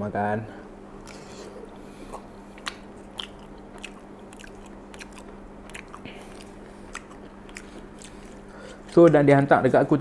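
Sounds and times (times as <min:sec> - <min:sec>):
person chewing food: 0:01.0 - 0:09.2
wet mouth clicks: 0:02.2 - 0:08.4.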